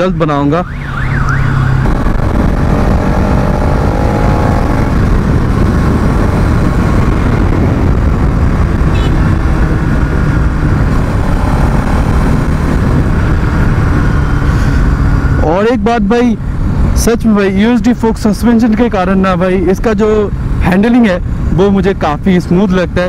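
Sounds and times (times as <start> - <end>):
wind noise on microphone: 0.0 - 23.0
motorcycle engine cruising: 0.7 - 17.1.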